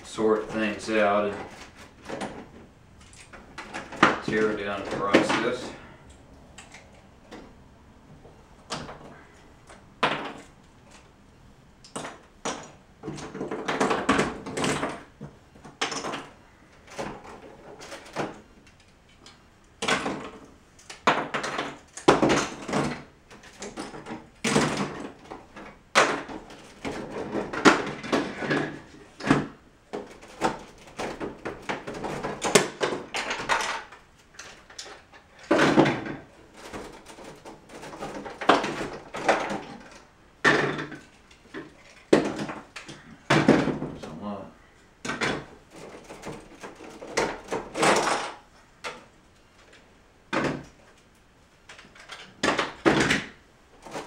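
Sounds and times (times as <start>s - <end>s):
loose plastic pieces clattering: 11.8s - 43.9s, 45.0s - 54.0s.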